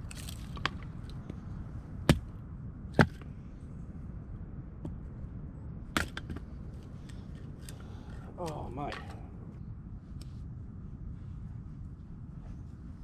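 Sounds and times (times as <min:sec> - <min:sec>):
hatchet chopping firewood: 0:02.0 - 0:02.3, 0:03.0 - 0:03.3.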